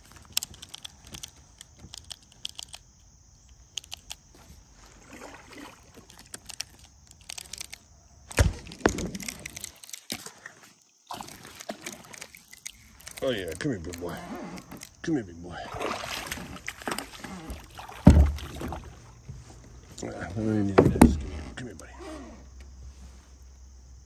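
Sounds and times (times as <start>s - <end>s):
fishing tackle clicking: 0.0s - 4.3s, 6.1s - 7.9s, 11.6s - 15.0s
rough handling noise: 0.0s - 5.2s, 5.9s - 10.8s, 16.1s - 23.4s
loud knock on kayak: 18.0s - 18.8s.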